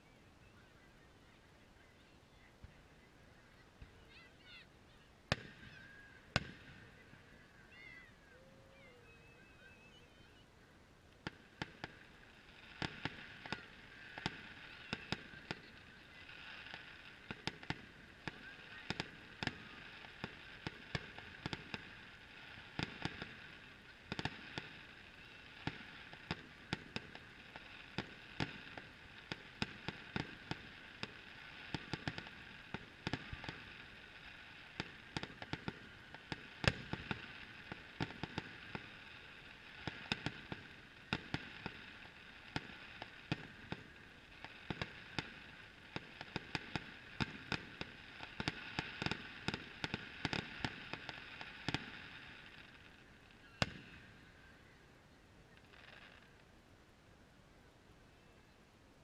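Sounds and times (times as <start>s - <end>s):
distant fireworks popping: 5.3s - 8.1s, 11.1s - 54.5s, 55.5s - 56.4s.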